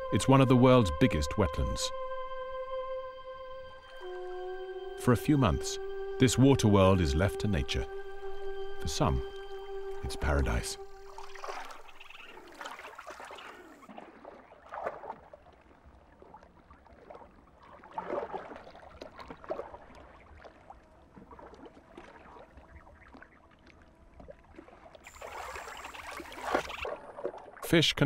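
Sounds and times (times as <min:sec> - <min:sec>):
water splashing and gurgling: 0:09.9 - 0:28.0.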